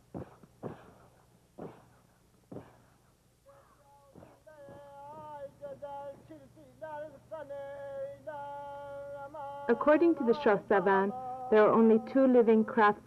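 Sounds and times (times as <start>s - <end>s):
person singing slow melody: 3.5s - 13.0s.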